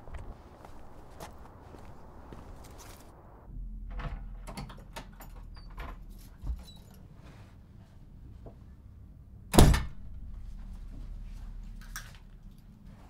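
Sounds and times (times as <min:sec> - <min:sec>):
door slamming shut: 0:03.8 - 0:06.0, 0:09.5 - 0:10.2
keys rattling: 0:04.6 - 0:07.1.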